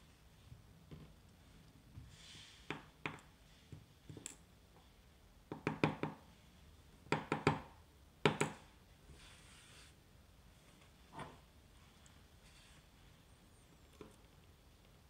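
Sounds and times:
soft rustle: 0:08.9 - 0:14.9.

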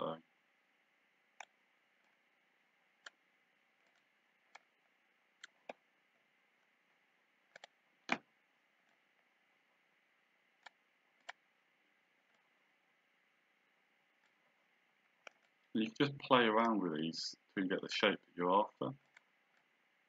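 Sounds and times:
faint room hiss: 0:00.0 - 0:20.0
computer mouse clicking: 0:01.4 - 0:02.2, 0:03.0 - 0:03.2, 0:03.8 - 0:04.8, 0:05.4 - 0:05.8, 0:07.5 - 0:08.2, 0:10.6 - 0:11.4, 0:15.1 - 0:15.7, 0:18.9 - 0:19.8.

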